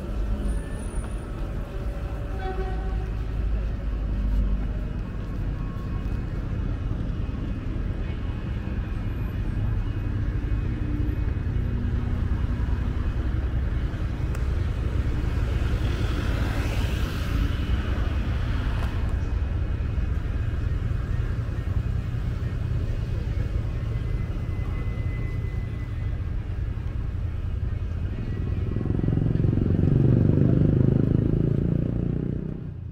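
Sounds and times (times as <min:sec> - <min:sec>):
low traffic rumble: 0:00.0 - 0:32.9.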